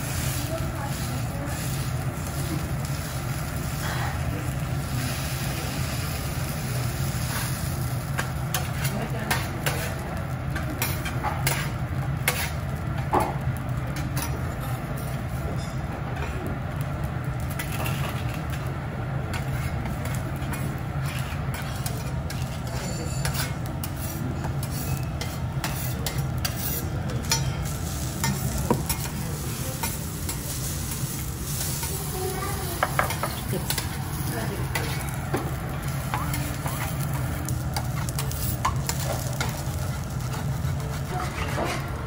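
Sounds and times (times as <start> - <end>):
rice sizzling on griddle: 0.0 - 42.0
metal spatula scraping and tapping: 10.6 - 12.7, 19.3 - 29.2, 37.8 - 41.9.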